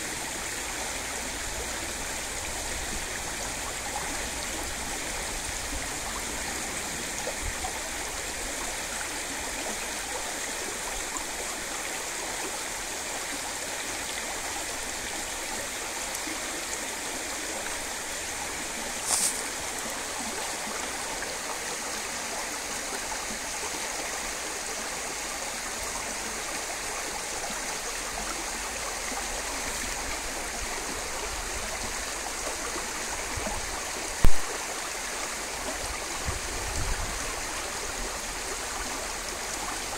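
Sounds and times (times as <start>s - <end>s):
creek water running over stones: 0.0s - 39.9s
brief loud hiss: 19.0s - 19.6s.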